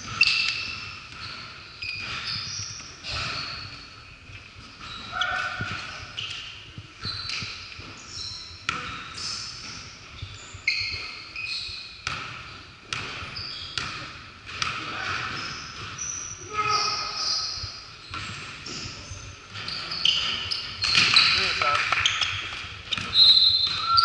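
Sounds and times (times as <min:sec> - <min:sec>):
sneakers squeaking: 0:00.0 - 0:24.0
basketball bouncing: 0:04.7 - 0:06.3, 0:07.0 - 0:09.0, 0:12.0 - 0:16.2, 0:17.6 - 0:24.0.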